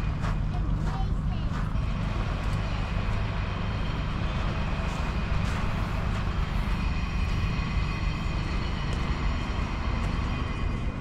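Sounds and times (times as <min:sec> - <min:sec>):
distant traffic rumble: 0:00.0 - 0:11.0.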